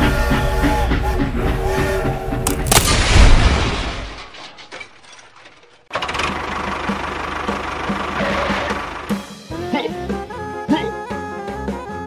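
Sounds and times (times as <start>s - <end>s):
crash with low rumble: 2.7s - 5.0s.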